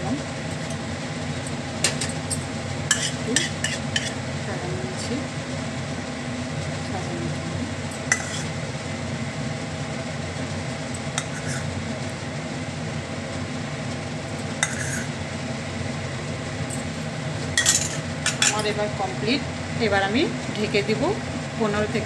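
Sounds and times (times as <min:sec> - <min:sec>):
steady mechanical hum: 0:00.0 - 0:22.0
metal spoon clinking on bowl: 0:14.4 - 0:15.1, 0:17.6 - 0:18.8.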